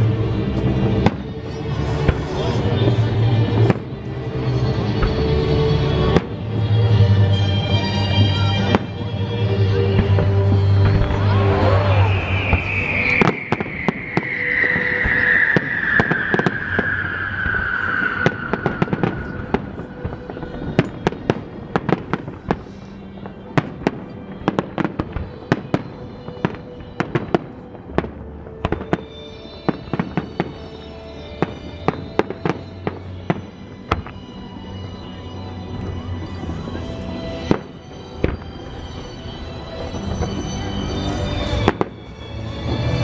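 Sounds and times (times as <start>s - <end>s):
fireworks bangs and crackling: 0.0s - 43.0s
music: 0.0s - 43.0s
long falling tone: 9.3s - 21.8s.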